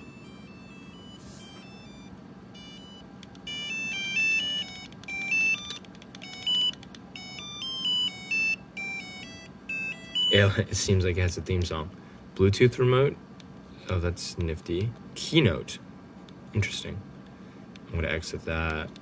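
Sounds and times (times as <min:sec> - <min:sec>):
buzzy electronic beep melody: 0:00.0 - 0:10.6.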